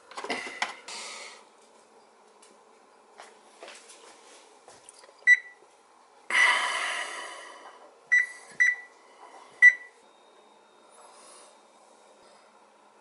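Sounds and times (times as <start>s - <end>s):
long oven tone: 5.2s - 13.0s
oven control panel beeps: 5.3s - 5.6s, 8.1s - 8.9s, 9.6s - 10.0s.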